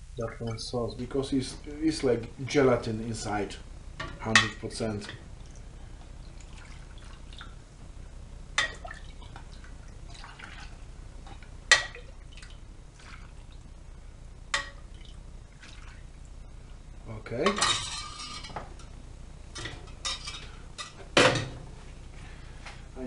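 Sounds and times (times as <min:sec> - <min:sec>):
liquid dripping and splashing: 0:05.4 - 0:07.6, 0:08.6 - 0:13.7, 0:14.6 - 0:16.0.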